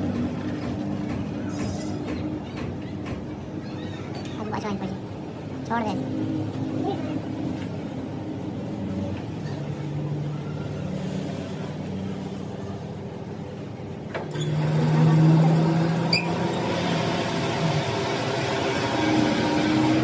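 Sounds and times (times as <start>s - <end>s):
machinery humming: 4.4s - 20.0s.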